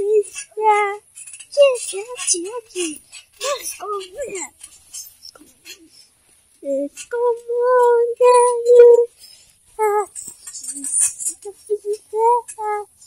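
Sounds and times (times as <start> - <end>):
high-pitched voice holding notes: 0.0 - 1.0, 1.6 - 4.5, 6.6 - 9.2, 9.8 - 13.0.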